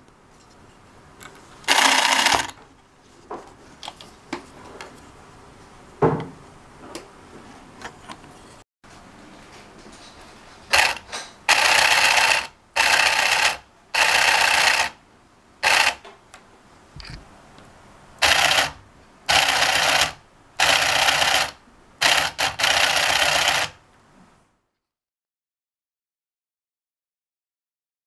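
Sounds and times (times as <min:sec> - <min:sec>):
small motor gearbox whirring: 0:01.7 - 0:02.6, 0:15.6 - 0:16.0, 0:18.2 - 0:23.7.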